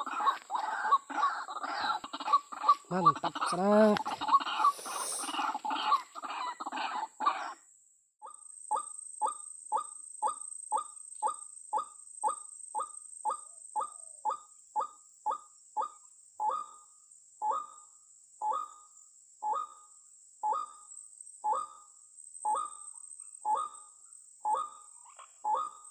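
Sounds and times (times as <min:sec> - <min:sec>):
waterhen harsh clucking calls: 0:00.0 - 0:07.6.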